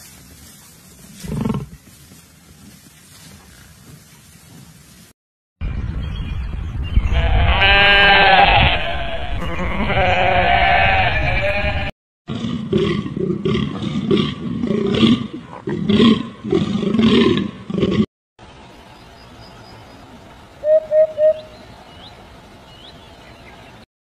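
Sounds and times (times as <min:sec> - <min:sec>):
goat bleating: 0:07.2 - 0:11.9.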